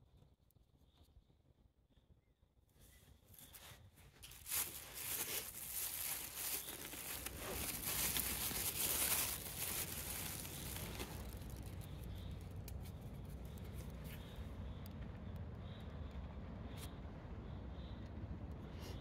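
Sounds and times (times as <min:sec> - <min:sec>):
rustling and crinkling: 0:02.8 - 0:14.4.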